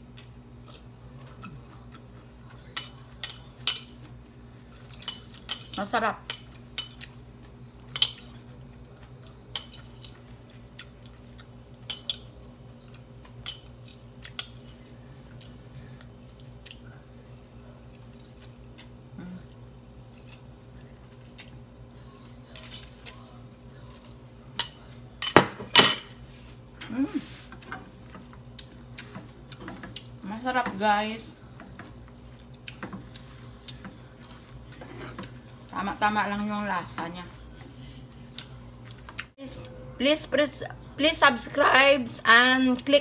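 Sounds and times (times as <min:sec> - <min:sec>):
steady low hum: 0:00.0 - 0:43.0.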